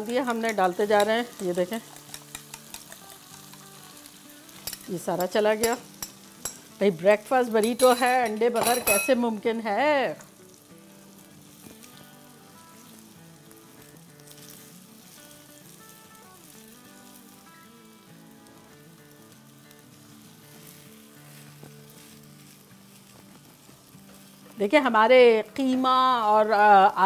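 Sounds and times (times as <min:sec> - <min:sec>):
eggs sizzling in a frying pan: 0:00.0 - 0:27.0
soft background music: 0:00.0 - 0:27.0
spatula pushing food in pan: 0:00.2 - 0:04.9, 0:20.0 - 0:24.5.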